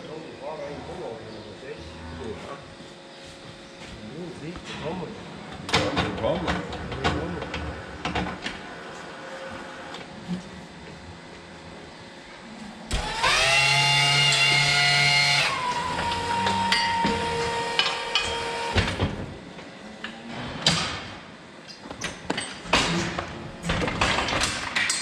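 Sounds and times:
hydraulic pump motor whine: 0:12.9 - 0:19.3.

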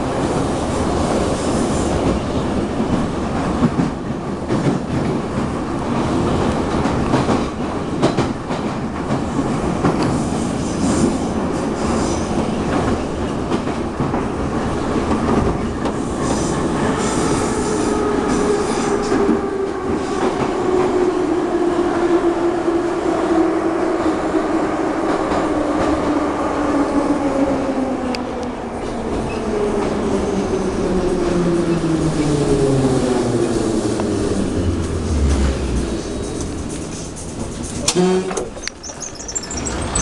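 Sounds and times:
train rumbling through tunnel: 0:00.0 - 0:40.0
high wheel squeal: 0:37.9 - 0:40.0.

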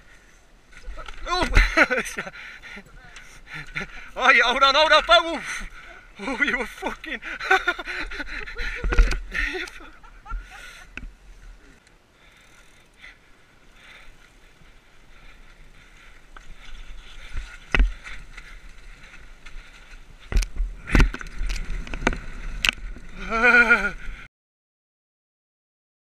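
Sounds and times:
bike rattling: 0:00.0 - 0:24.3
bike tyre noise on dirt: 0:00.0 - 0:24.3
wind noise: 0:07.2 - 0:11.7, 0:14.2 - 0:24.3
sharp knocks over bumps: 0:17.3 - 0:18.0.

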